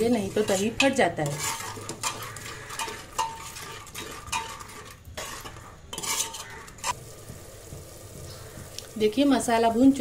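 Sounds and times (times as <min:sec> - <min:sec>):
ladle scraping a metal pot: 0:00.0 - 0:07.0.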